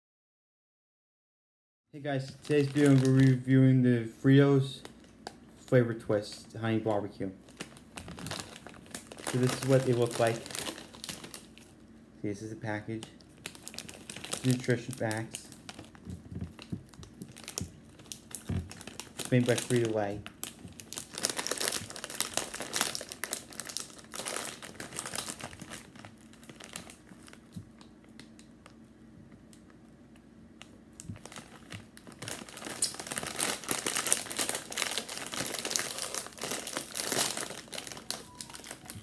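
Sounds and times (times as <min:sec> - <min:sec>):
plastic bag crinkling: 0:02.1 - 0:03.6, 0:07.4 - 0:11.8, 0:12.9 - 0:28.4, 0:30.6 - 0:39.0.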